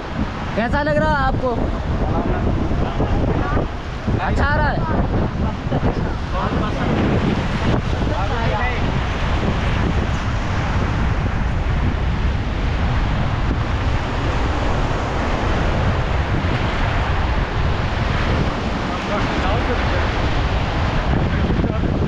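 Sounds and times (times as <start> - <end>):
river rapids rushing: 0.0 - 22.0
wind buffeting microphone: 0.0 - 22.0.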